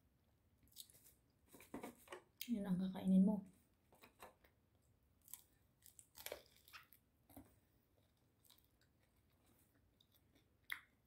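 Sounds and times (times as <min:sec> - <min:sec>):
chewing mouth clicks and smacks: 0:10.0 - 0:11.0.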